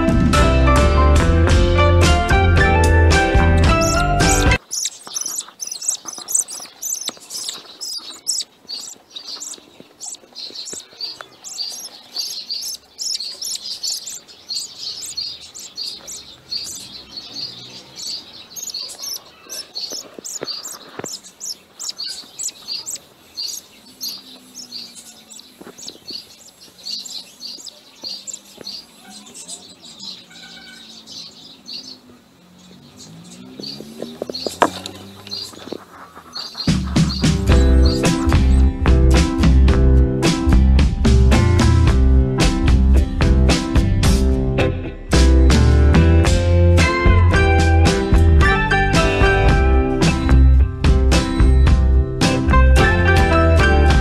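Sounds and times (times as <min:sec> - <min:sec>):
budgerigars chirping: 0:03.6 - 0:38.7.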